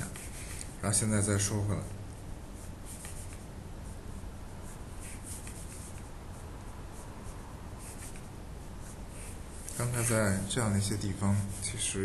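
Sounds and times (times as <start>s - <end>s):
steady low hum: 0.0s - 12.0s
pen scratching on paper: 2.6s - 10.2s.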